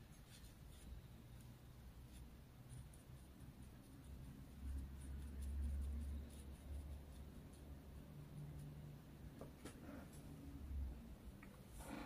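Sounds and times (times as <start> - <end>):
brush scratching on paper: 0.0 - 1.1, 2.0 - 8.9.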